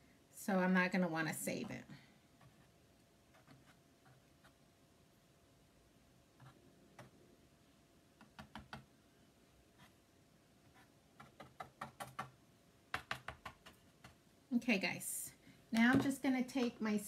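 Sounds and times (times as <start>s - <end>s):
hard objects tapping on a surface: 15.8s - 16.2s.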